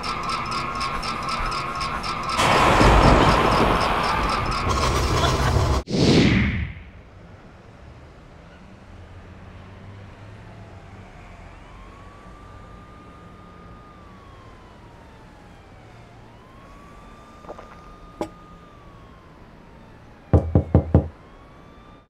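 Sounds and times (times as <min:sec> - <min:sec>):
police siren wailing: 0:00.0 - 0:05.8, 0:09.5 - 0:22.0
knocks on a door: 0:20.3 - 0:21.1.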